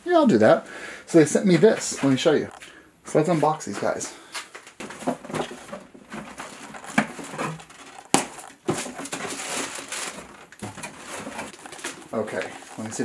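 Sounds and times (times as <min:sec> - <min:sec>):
plastic wrap rustling: 0:01.2 - 0:13.0
cardboard box being handled: 0:04.8 - 0:13.0.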